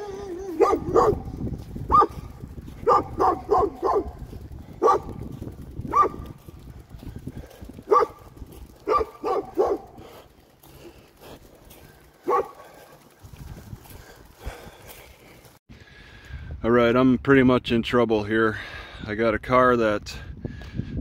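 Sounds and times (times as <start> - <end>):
dog barking: 0.5 - 1.3, 1.9 - 4.2, 4.8 - 5.2, 5.9 - 6.2, 7.9 - 10.0, 12.2 - 12.8.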